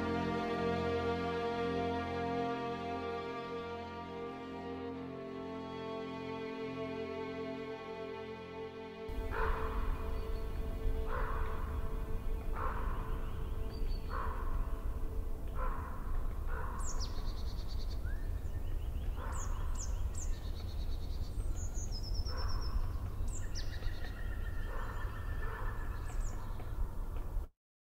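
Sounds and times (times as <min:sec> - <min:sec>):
steady low rumble: 0:09.1 - 0:24.2
high bird chirps and trills: 0:09.1 - 0:27.2
bird calling: 0:09.1 - 0:27.4.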